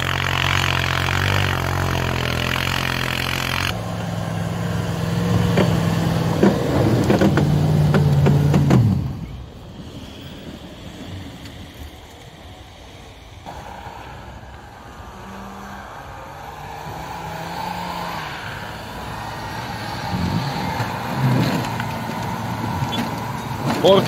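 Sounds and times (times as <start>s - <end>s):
suv engine driving through snow: 0.0s - 10.4s, 13.4s - 24.0s.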